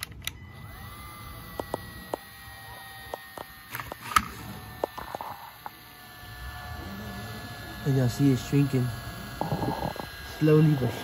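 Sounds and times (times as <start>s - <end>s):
heat gun fan hum and whine: 0.0s - 11.0s.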